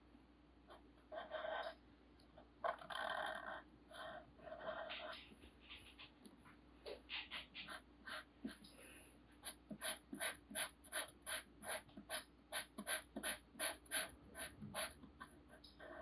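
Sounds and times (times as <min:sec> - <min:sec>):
marker scratching on paper: 0:09.4 - 0:16.0.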